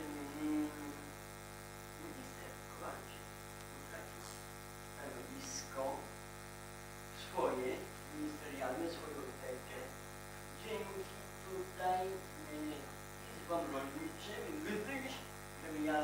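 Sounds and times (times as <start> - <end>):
faint broken vocal sounds: 0.0 - 1.2
electrical mains hum: 0.0 - 16.0.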